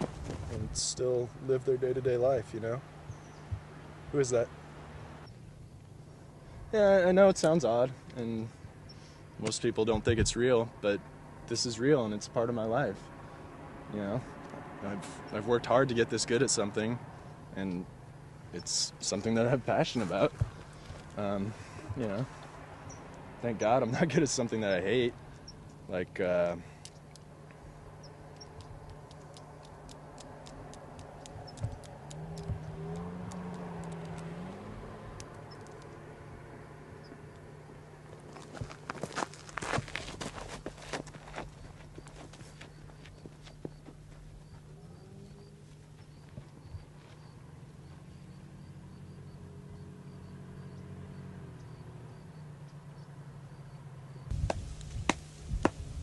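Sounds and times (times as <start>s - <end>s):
dull thumps: 20.2s - 20.7s, 54.3s - 55.9s
person making echolocation clicks: 28.3s - 34.4s, 35.2s - 36.0s.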